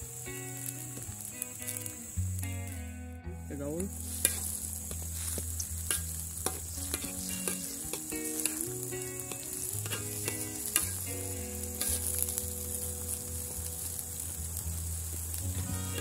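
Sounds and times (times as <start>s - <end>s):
simmering liquid hiss: 0.0s - 16.0s
metal ladle scraping wok: 3.9s - 14.3s.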